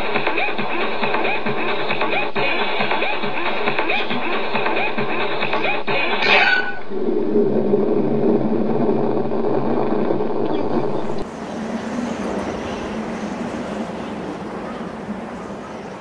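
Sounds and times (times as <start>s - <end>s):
cartoon crash: 6.2s - 6.8s
quieter steady noise: 6.7s - 16.0s
heavy rumble: 6.8s - 16.0s.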